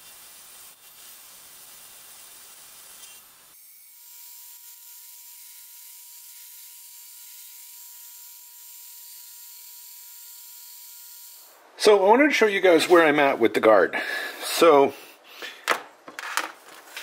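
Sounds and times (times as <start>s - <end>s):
steel grinding hiss: 0.0s - 3.6s.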